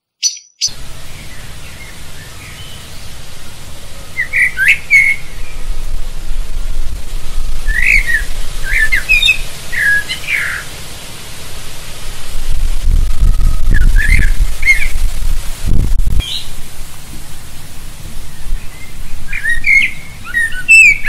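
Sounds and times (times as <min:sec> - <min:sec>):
blackbird singing: 0:00.0 - 0:05.8, 0:06.5 - 0:10.8, 0:13.1 - 0:15.0, 0:16.2 - 0:16.6, 0:18.2 - 0:21.0
steady low rumble: 0:00.7 - 0:20.7.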